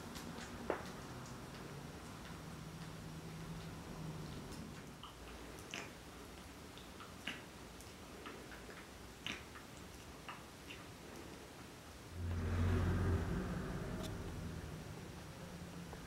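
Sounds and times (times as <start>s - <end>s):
cat licking kitten: 0.0s - 11.8s.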